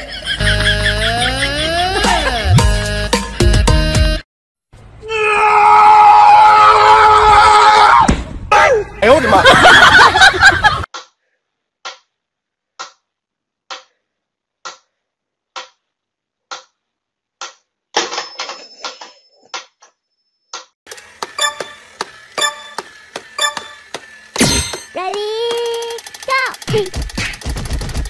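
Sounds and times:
toy clicking and beeping: 0:20.9 - 0:27.2
metronome ticking: 0:21.4 - 0:23.8.

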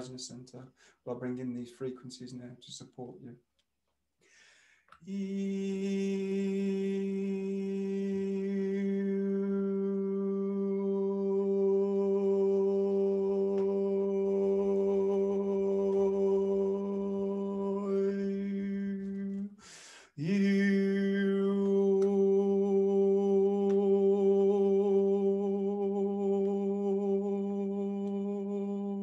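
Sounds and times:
man breathing in: 0:00.8 - 0:01.0, 0:04.2 - 0:05.0, 0:19.6 - 0:20.2.

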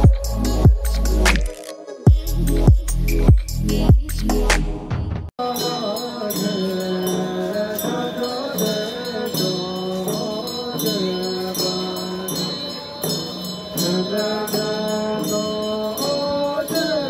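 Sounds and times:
high ringing: 0:05.4 - 0:17.0.

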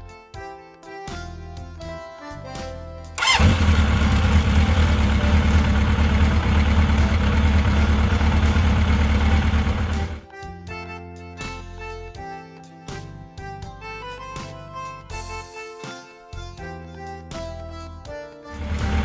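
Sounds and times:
light background music: 0:00.0 - 0:19.0
motorcycle engine revving and running: 0:03.2 - 0:10.2, 0:18.6 - 0:19.0.

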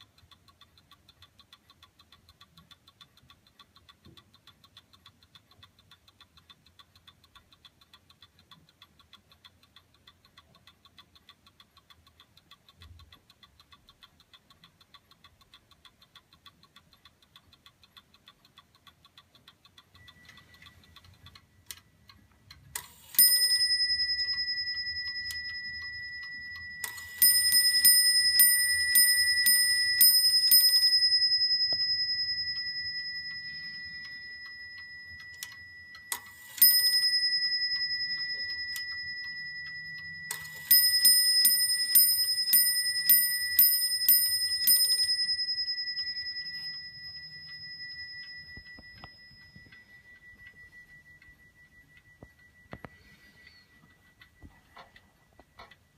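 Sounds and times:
clock ticking: 0:00.0 - 0:55.9
clock bell striking: 0:23.2 - 0:52.6.

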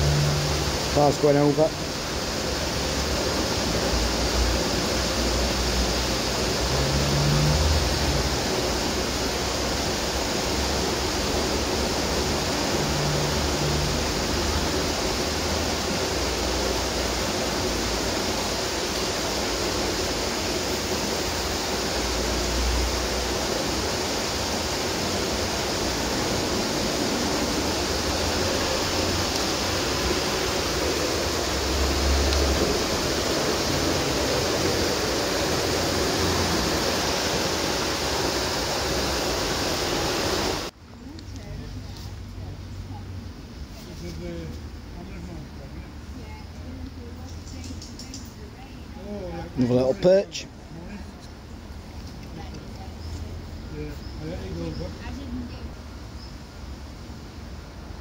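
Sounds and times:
cars rumbling over bridge: 0:00.0 - 0:18.7, 0:19.4 - 0:40.7
water rushing into canal: 0:00.0 - 0:40.8.

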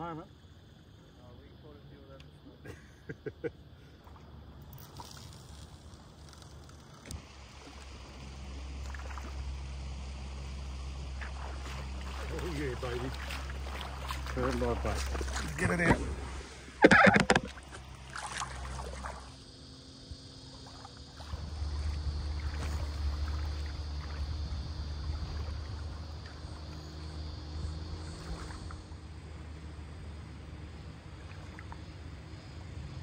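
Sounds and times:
wind rumble on microphone: 0:21.2 - 0:28.9.

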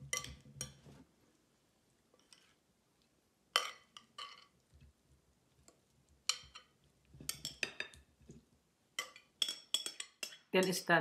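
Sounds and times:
metal spoon clinking on glass bowl: 0:00.1 - 0:00.8, 0:06.3 - 0:06.7, 0:07.3 - 0:08.0, 0:09.0 - 0:10.8.

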